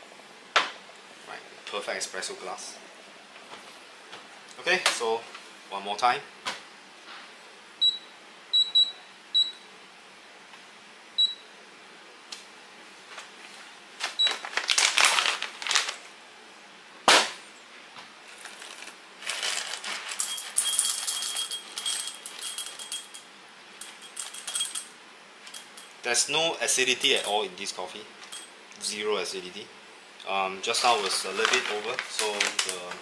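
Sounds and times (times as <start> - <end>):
scraping and rattling: 18.3 - 23.2
light metallic clinks: 20.2 - 24.9.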